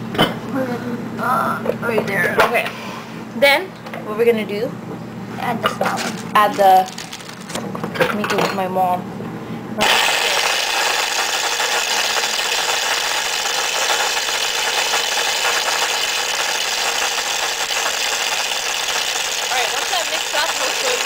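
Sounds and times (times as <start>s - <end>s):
electric stand mixer running: 9.8s - 21.0s.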